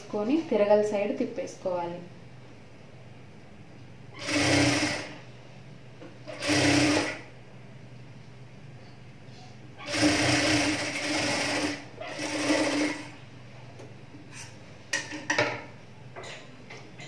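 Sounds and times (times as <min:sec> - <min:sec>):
sewing machine stitching: 0:04.2 - 0:05.2, 0:06.3 - 0:07.3, 0:09.8 - 0:13.2.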